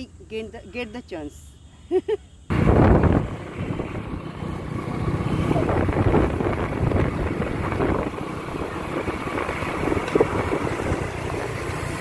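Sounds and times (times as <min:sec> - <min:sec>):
motorcycle engine running: 0:02.5 - 0:12.0.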